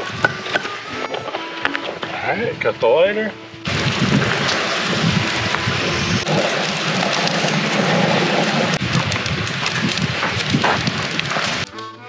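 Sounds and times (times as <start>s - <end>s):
wind buffeting microphone: 1.2s - 11.7s.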